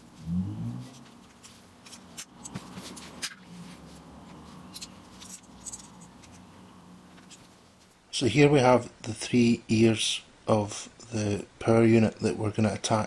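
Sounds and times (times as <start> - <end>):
small metal parts clicking: 4.7 - 6.4.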